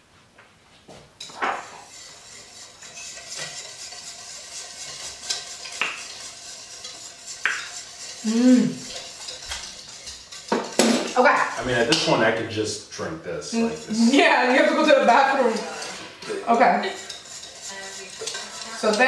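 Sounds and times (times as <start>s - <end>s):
whisk wires clinking on metal: 1.2s - 12.1s, 16.9s - 19.0s
whisk scraping metal bowl: 1.2s - 19.0s
person humming: 8.2s - 8.8s.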